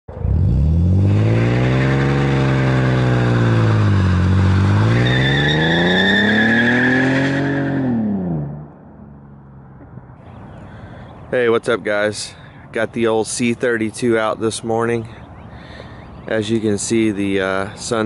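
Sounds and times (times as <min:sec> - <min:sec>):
supercharger whine: 0:00.1 - 0:05.7
car accelerating hard: 0:00.1 - 0:08.8.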